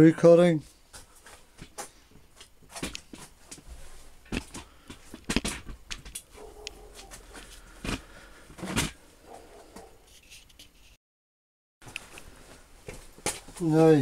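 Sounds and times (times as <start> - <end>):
knocks and clunks of handling: 1.6 - 9.0.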